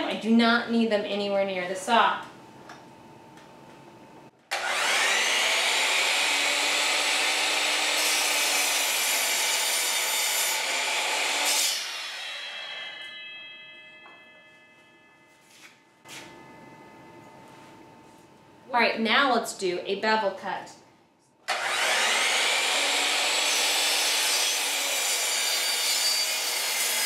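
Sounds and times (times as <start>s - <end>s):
miter saw cutting wood: 4.5s - 13.7s, 21.5s - 27.0s.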